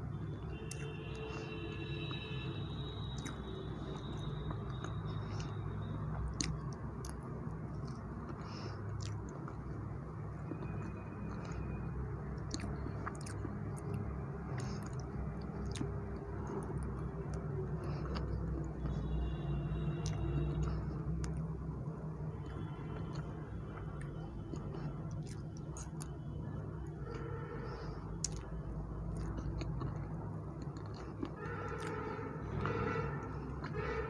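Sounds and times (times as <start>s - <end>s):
chewing soft cake: 0.0s - 34.0s
mouth clicks: 3.0s - 9.8s, 10.4s - 19.1s, 22.4s - 34.0s.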